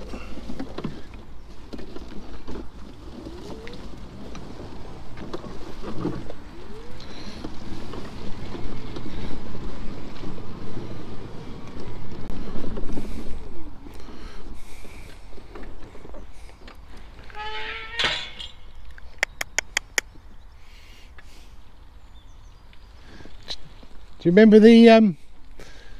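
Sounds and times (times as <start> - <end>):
tyres squelching in mud: 0.0 - 17.3, 18.7 - 20.2.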